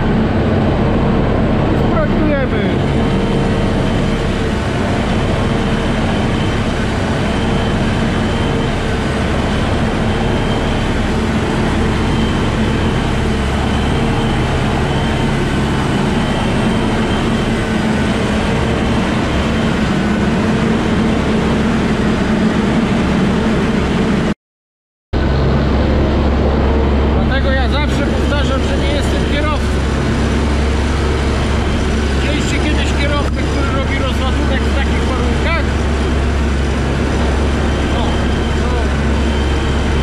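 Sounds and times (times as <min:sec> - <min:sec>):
engine and pump humming: 0:00.0 - 0:24.4, 0:25.2 - 0:40.0.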